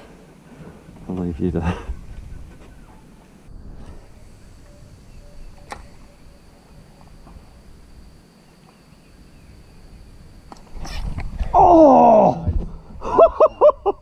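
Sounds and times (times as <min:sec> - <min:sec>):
thin high whine: 0:00.0 - 0:14.0
sharp click: 0:05.5 - 0:06.0.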